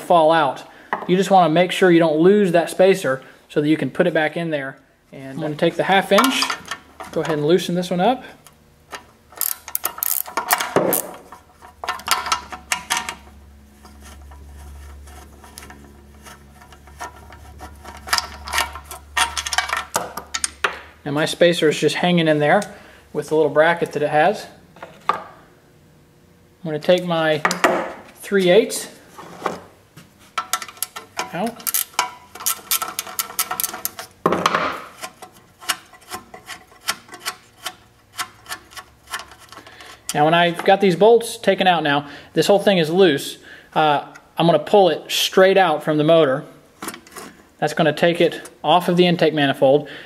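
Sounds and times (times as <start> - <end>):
ratchet wrench clicking: 9.4 - 11.1
ratchet rasp: 9.4 - 12.3, 31.6 - 34.1, 34.9 - 40.2.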